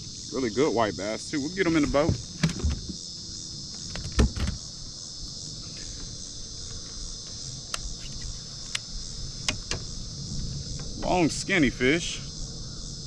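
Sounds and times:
high-pitched insect chorus: 0.0s - 13.0s
dull thump: 1.7s - 3.0s.

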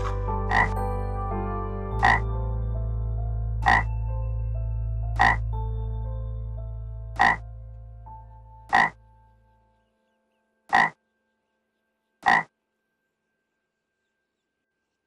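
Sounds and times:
frog croaking: 0.5s - 0.8s, 2.0s - 2.2s, 3.6s - 3.9s, 5.2s - 5.4s, 7.2s - 7.5s, 8.7s - 9.0s, 10.7s - 11.0s, 12.2s - 12.6s.

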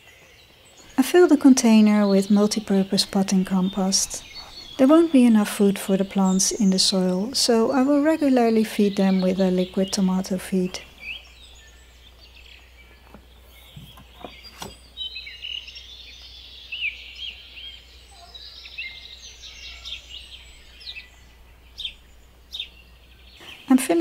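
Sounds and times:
songbirds chirping and singing: 0.0s - 24.0s.

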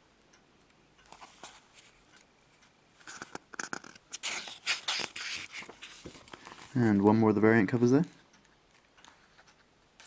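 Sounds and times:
comic book pages turning: 3.1s - 6.8s.

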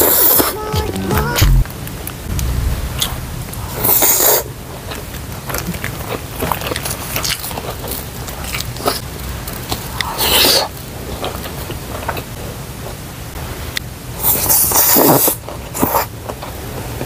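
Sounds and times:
chewing: 5.5s - 12.3s.

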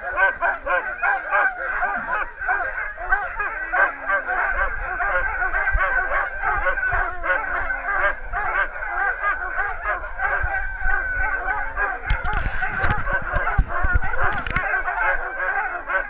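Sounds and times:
dogs barking and yelping: 0.0s - 16.0s
dogs howling: 0.0s - 16.0s.

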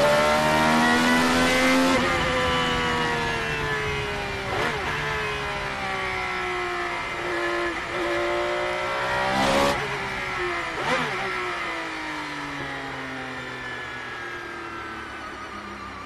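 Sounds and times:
racing car engine revving: 0.0s - 2.3s, 7.0s - 9.9s.

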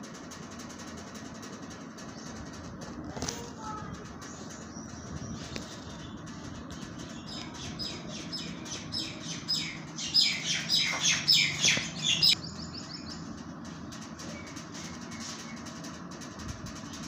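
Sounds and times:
steady low hum: 0.0s - 17.0s
bird chirping: 4.4s - 15.6s.

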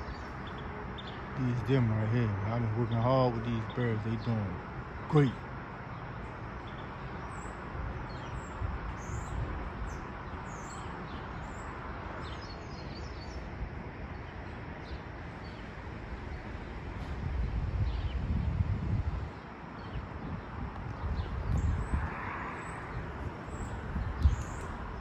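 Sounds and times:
wind rumble on microphone: 6.2s - 25.0s.

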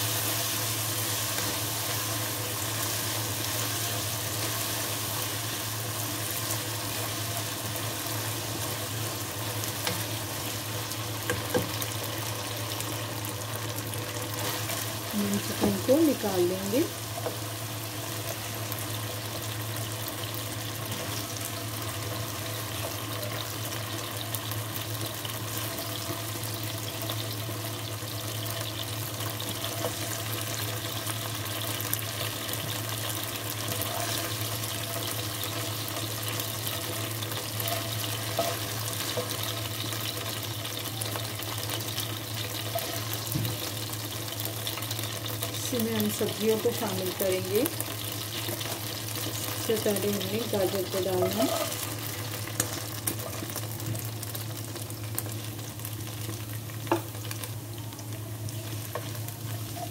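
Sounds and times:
hot oil sizzling in a wok: 0.0s - 59.9s
spoon scraping: 51.2s - 51.8s.

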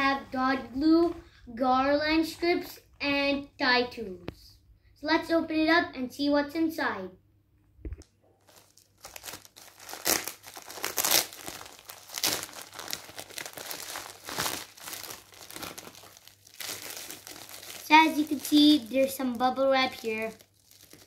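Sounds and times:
plastic mailer bag crinkling: 8.4s - 21.0s.

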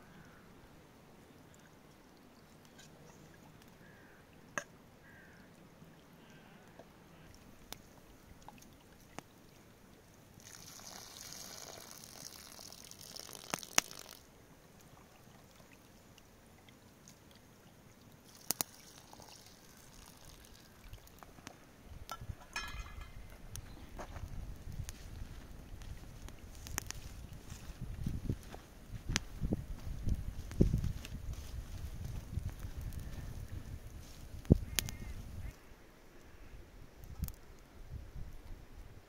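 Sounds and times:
water splashing into metal pan: 22.1s - 23.2s.

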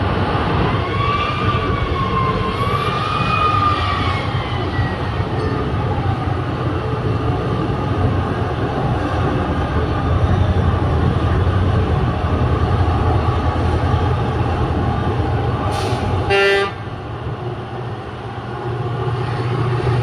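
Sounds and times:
heavy diesel rumble: 0.0s - 20.0s
wavering machine whine: 0.6s - 8.0s.

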